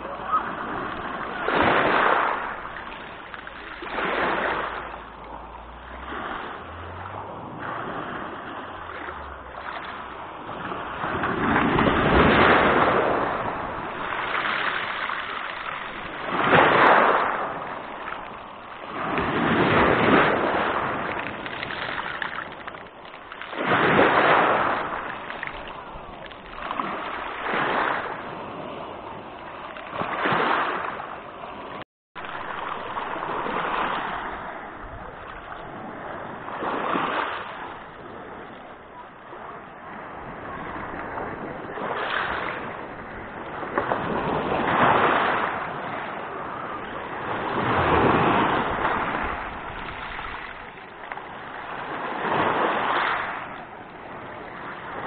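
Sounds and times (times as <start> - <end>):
waves breaking on pebble beach: 0.0 - 55.0.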